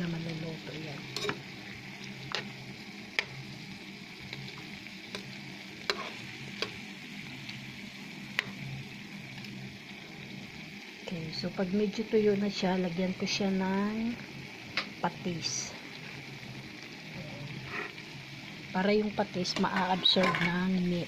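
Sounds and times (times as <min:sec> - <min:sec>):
chicken sizzling in oil: 0:00.0 - 0:21.0
sharp pops of frying: 0:00.2 - 0:03.6, 0:04.2 - 0:07.6, 0:08.3 - 0:08.8, 0:14.6 - 0:15.1, 0:19.4 - 0:20.8.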